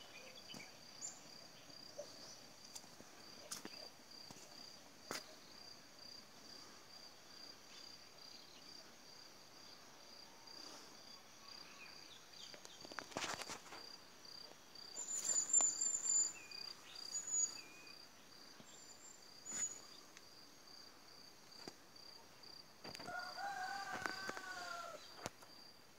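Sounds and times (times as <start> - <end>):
insect chirping: 0.0 - 25.9
high bird chirps: 15.0 - 17.9.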